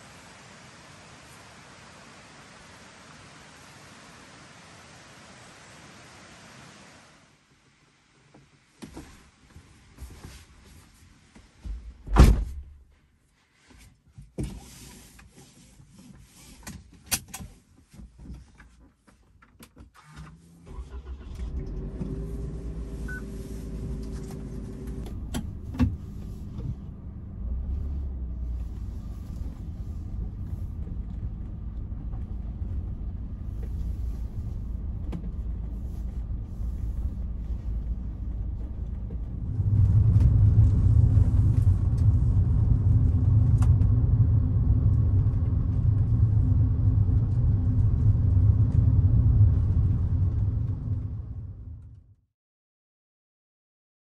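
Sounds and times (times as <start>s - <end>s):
loud thump: 12.0s - 12.7s
small car engine starting and running: 20.0s - 52.1s.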